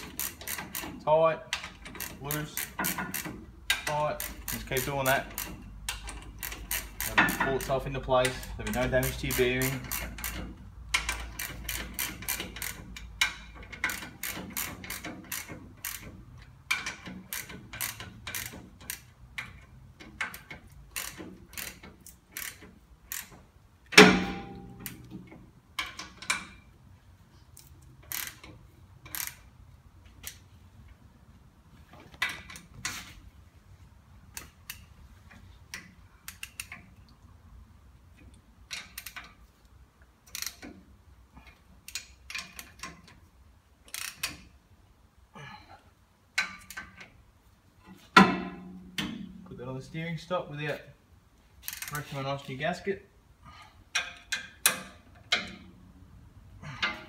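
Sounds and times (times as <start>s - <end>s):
hand ratchet clicking: 0.0s - 25.2s, 27.5s - 29.6s, 34.2s - 37.0s, 38.3s - 39.4s, 40.2s - 40.8s, 41.4s - 43.2s, 43.8s - 44.5s, 51.6s - 52.1s, 53.9s - 55.8s, 56.6s - 57.0s
loud metallic clank: 23.9s - 24.9s.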